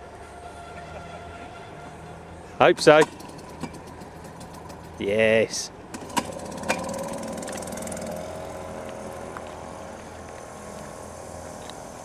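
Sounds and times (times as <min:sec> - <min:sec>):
outboard motor humming: 0:02.7 - 0:12.0.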